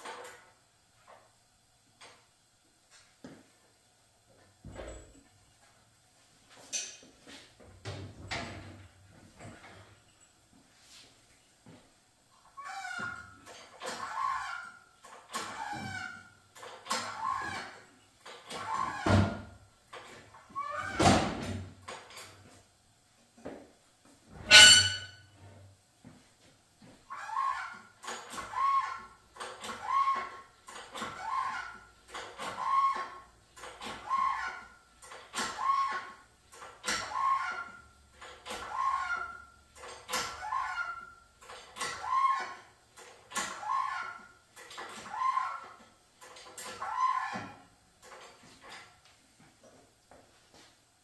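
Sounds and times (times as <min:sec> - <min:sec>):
hydraulic hoist squeaking: 0:12.5 - 0:19.4, 0:20.6 - 0:21.2, 0:24.5 - 0:25.4, 0:27.1 - 0:42.7, 0:43.3 - 0:48.8
sharp squeal: 0:24.5 - 0:25.2.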